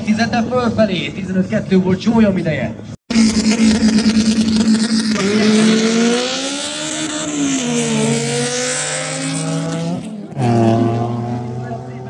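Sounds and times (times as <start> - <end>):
hatchback engines revving: 3.1 - 12.0.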